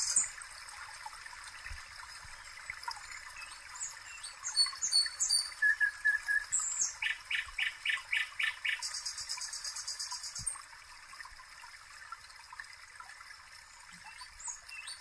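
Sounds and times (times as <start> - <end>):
water trickling: 0.0 - 15.0.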